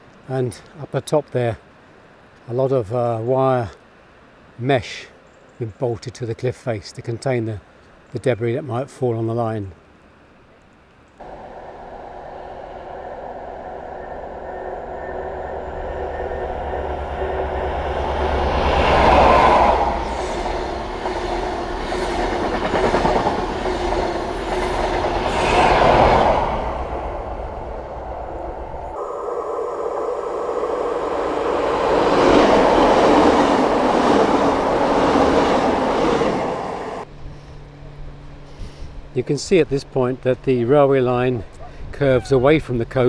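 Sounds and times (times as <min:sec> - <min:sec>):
train passing on rails: 0:11.2 - 0:39.2
diesel train engine drone: 0:11.2 - 0:40.4.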